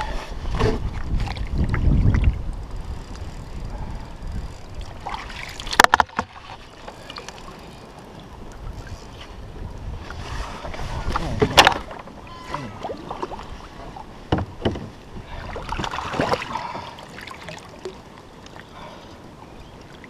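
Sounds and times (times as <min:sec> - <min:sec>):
wind buffeting microphone: 0:00.0 - 0:05.2, 0:08.4 - 0:12.0
knocks and handling on a kayak: 0:05.1 - 0:06.6, 0:11.0 - 0:13.4, 0:14.2 - 0:16.4.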